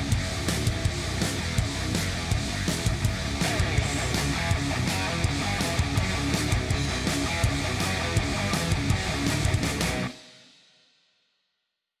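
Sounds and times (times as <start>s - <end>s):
background music: 0.0s - 10.2s.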